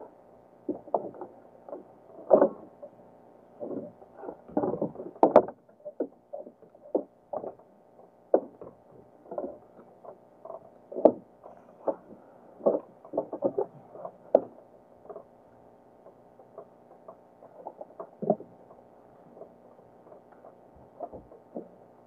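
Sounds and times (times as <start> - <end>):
waves lapping against boat hull: 3.6 - 15.4.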